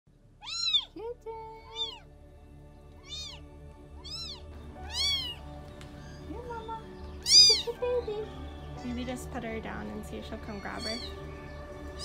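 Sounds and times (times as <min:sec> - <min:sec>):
kitten meowing: 0:00.4 - 0:02.1, 0:03.0 - 0:07.8, 0:10.7 - 0:11.2.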